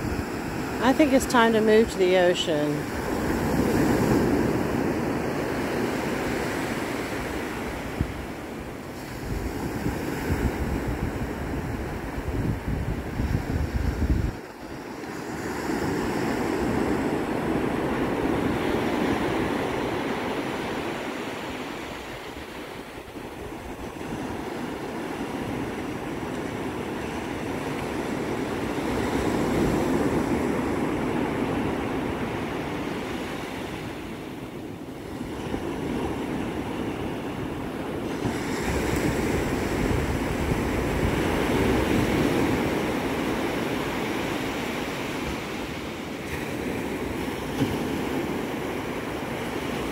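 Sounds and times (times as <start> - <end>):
surf breaking on sand: 35.0 - 49.9.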